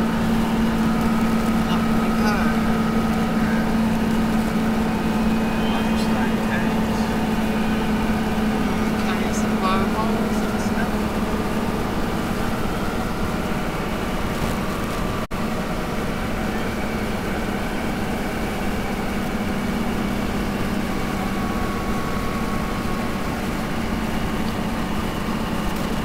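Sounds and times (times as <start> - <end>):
engine and road noise drone: 0.0 - 26.0.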